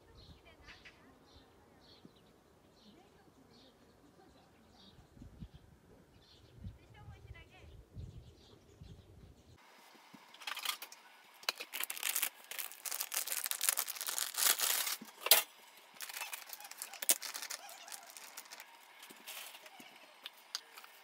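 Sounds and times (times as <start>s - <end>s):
plastic packet crinkling: 10.4s - 19.9s.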